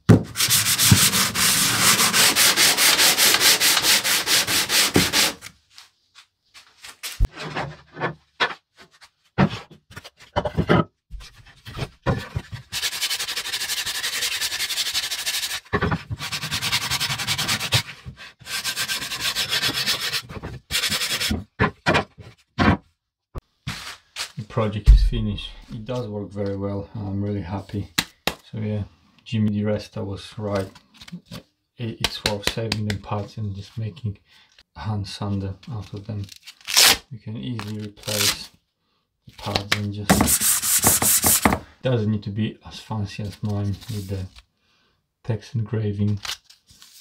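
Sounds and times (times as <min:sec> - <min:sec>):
sandpaper rubbing on wood: 0:00.4 - 0:05.4, 0:12.7 - 0:15.6, 0:16.2 - 0:17.8, 0:18.5 - 0:21.3, 0:40.1 - 0:41.6.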